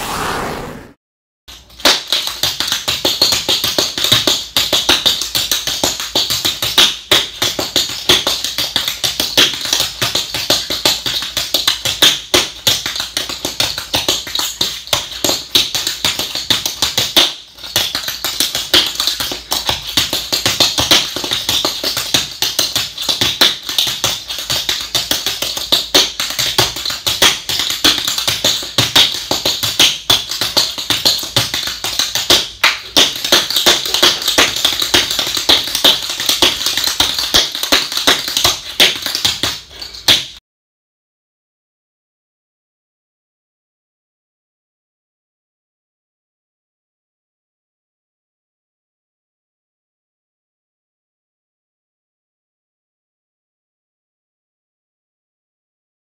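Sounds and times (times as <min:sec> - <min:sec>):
tap shoes tapping on floor: 0:01.6 - 0:40.4.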